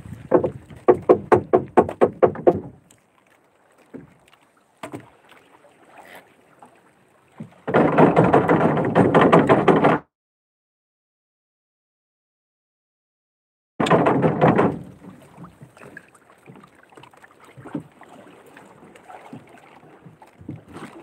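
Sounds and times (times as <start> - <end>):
sharp knocks on wooden boat: 0.2 - 2.8, 4.8 - 5.1, 7.4 - 10.1, 13.8 - 16.6.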